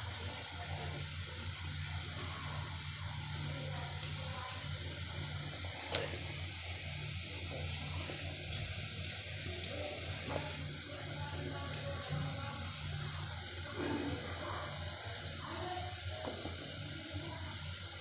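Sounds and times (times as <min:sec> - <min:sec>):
onions sizzling in oil: 0:00.0 - 0:18.0.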